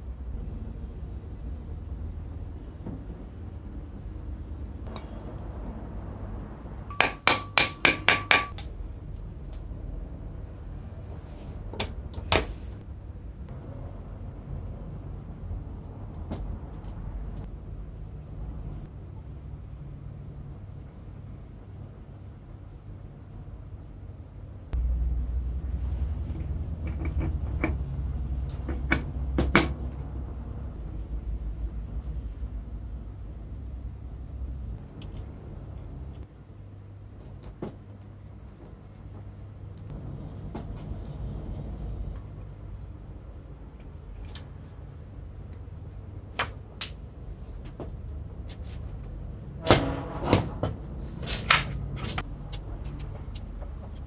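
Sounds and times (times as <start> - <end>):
steady low hum: 0.0 - 54.0
metal gear clicks and taps: 52.1 - 54.0.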